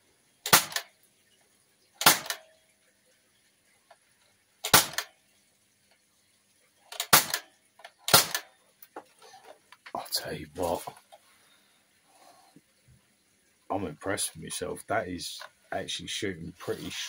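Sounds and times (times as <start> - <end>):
bb rifle shot pop: 0.5 - 0.8, 2.0 - 2.4, 4.7 - 5.1, 7.0 - 7.4, 8.1 - 8.4.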